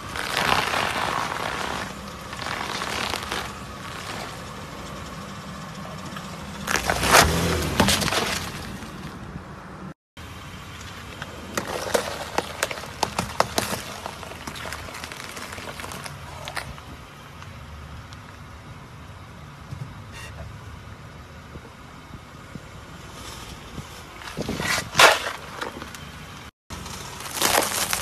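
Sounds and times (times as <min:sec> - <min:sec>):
tyre crushing crunchy objects: 0:00.0 - 0:04.6, 0:06.6 - 0:09.2, 0:11.2 - 0:17.0, 0:24.0 - 0:26.0, 0:26.7 - 0:28.0
car engine running: 0:00.0 - 0:27.9.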